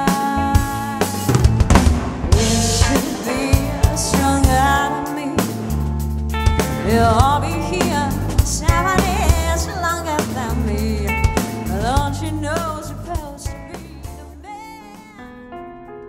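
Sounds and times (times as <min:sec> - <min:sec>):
woman singing lead vocal: 0:00.0 - 0:01.4, 0:02.4 - 0:05.9, 0:06.7 - 0:15.3
live band music: 0:00.0 - 0:15.2
bass drum and snare: 0:00.6 - 0:14.2.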